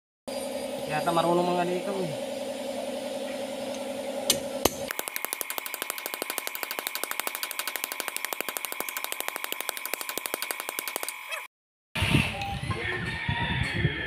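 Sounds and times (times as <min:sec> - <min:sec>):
small motor ticking and whining: 0:03.2 - 0:11.5
sharp clicks: 0:04.6 - 0:11.4.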